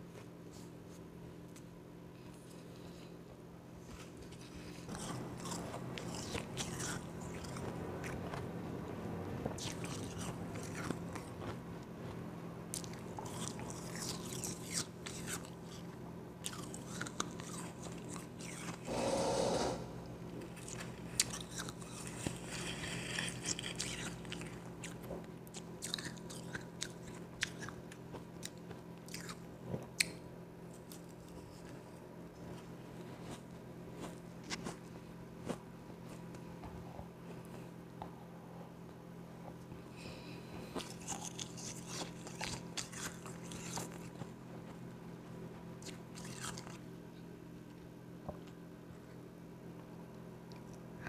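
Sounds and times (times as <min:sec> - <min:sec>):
crunching and chewing ice: 0:04.2 - 0:08.4, 0:09.6 - 0:11.6, 0:12.7 - 0:18.8, 0:20.5 - 0:31.8, 0:40.6 - 0:44.8, 0:45.8 - 0:46.8
loud burst of noise: 0:18.9 - 0:20.0.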